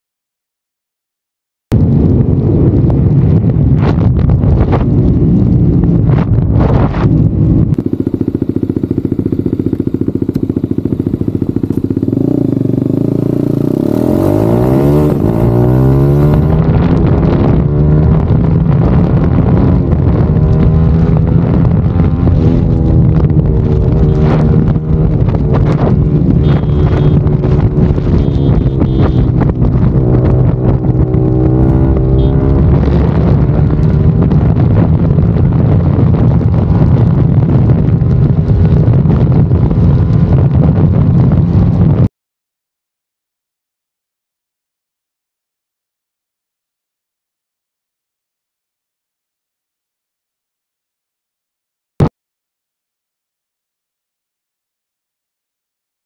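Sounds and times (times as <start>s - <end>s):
motorcycle engine running: 1.7s - 42.1s
wind on microphone: 1.7s - 42.1s.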